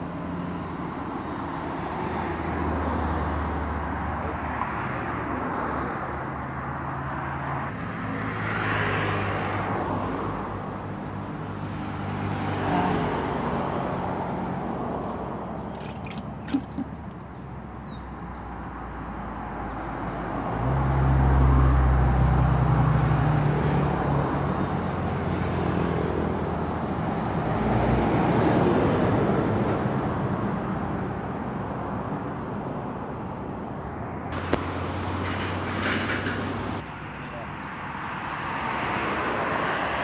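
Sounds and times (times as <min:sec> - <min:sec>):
heavy vehicle engine drone: 0:32.2 - 0:37.9.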